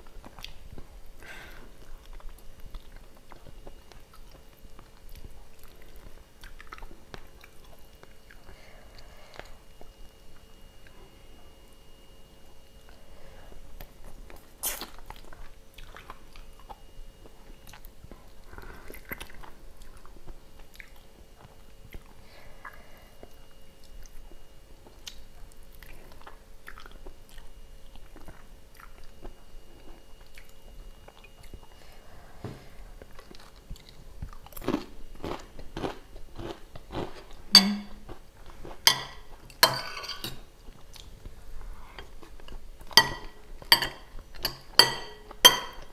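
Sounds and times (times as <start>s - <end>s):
chewing meat off a bone: 1.8s - 11.0s, 13.8s - 31.8s, 33.0s - 39.7s
metal spoon clinking on plate: 37.6s - 38.0s, 38.9s - 40.4s, 43.0s - 45.9s.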